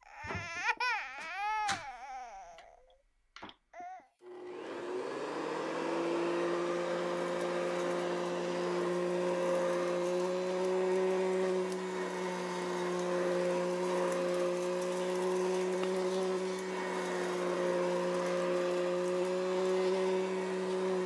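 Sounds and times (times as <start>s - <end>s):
baby doll cry: 0.0s - 2.9s, 3.7s - 4.2s
toy vacuum motor whirring: 0.1s - 2.7s, 3.8s - 21.0s.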